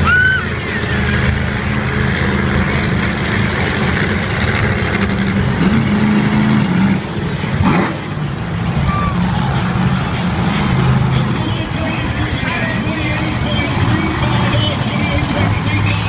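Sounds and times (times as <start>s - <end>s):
child squealing: 0.0s - 0.6s, 8.8s - 9.3s
truck engine running loud: 0.0s - 16.0s.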